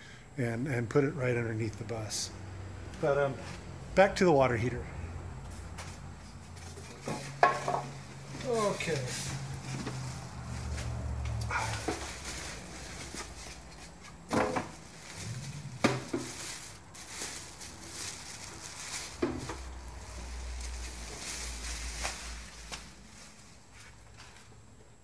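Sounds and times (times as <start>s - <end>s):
plastic wrapping crinkling: 11.5s - 14.1s, 14.7s - 23.8s.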